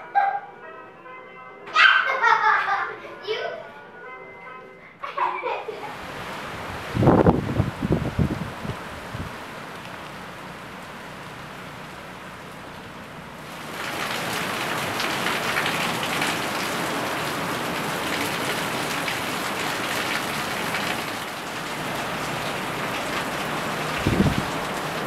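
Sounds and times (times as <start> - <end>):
heavy rain pouring: 5.8 - 25.0.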